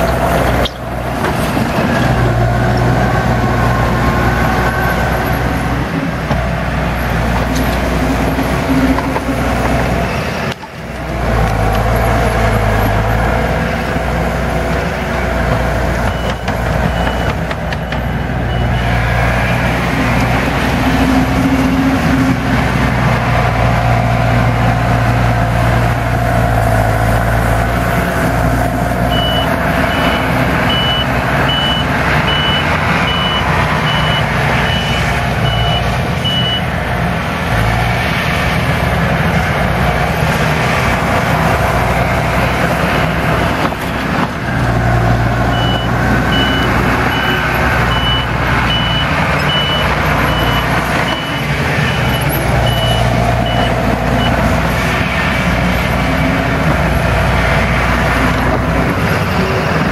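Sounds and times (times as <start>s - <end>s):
diesel engines running: 0.0s - 59.9s
backup alarm beeping: 29.1s - 36.6s, 45.5s - 54.3s.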